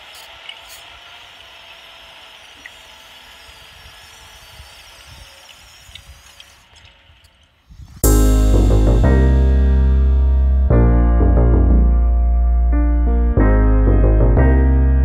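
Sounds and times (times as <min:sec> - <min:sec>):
low rumble: 0:08.0 - 0:15.0.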